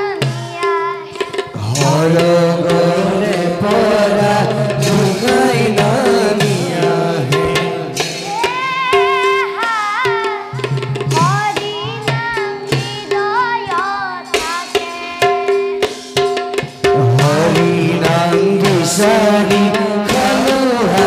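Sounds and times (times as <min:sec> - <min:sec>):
person singing wavering melody: 0:00.0 - 0:15.8
hand drum strokes: 0:00.1 - 0:21.0
steady held notes: 0:01.5 - 0:10.3.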